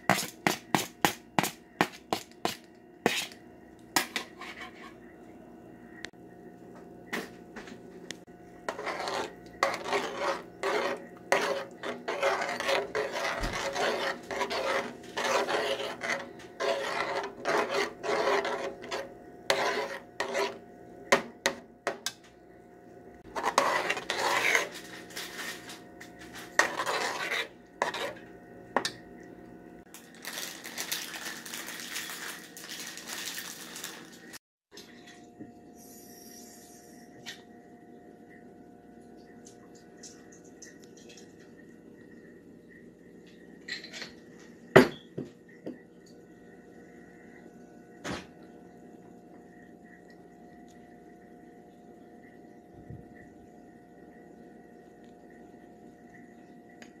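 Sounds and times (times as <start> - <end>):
spoon stirring in metal pot: 8.6 - 22.2, 23.3 - 29.0.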